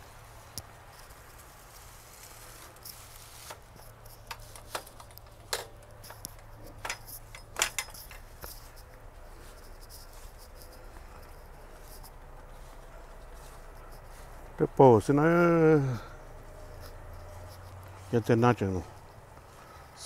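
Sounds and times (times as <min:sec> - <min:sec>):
footsteps crunching on snow: 0:08.2 - 0:20.0.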